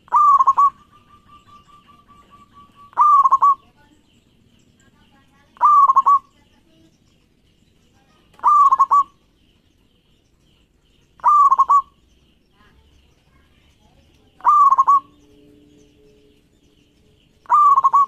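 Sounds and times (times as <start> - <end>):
dove cooing: 0.0 - 3.8, 5.5 - 6.4, 8.3 - 9.2, 11.2 - 12.0, 14.3 - 18.0.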